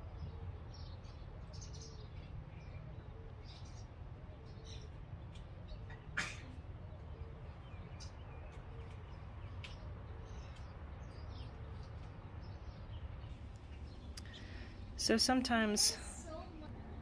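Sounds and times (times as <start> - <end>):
low background rumble: 10.2 - 17.0.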